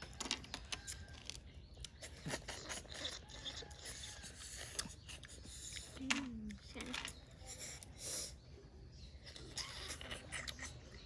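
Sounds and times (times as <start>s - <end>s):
slurping snail meat: 0.8s - 8.5s.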